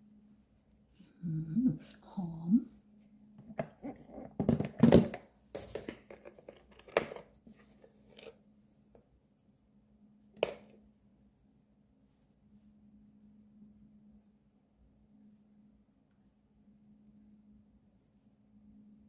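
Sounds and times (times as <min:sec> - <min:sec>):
faint low hum: 0:00.0 - 0:19.0
utensils rustling and knocking: 0:05.6 - 0:08.3.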